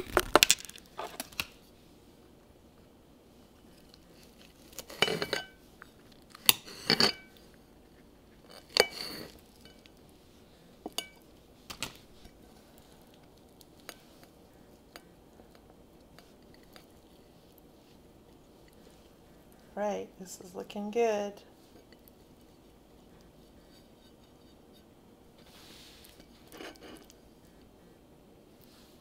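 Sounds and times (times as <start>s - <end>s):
cutlery clinking on a plate: 4.9s - 5.6s, 6.4s - 7.3s, 10.9s - 11.2s.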